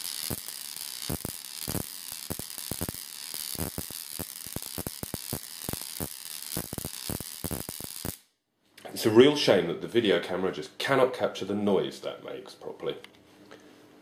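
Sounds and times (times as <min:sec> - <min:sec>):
electric spark hissing and snapping: 0:00.0 - 0:08.3.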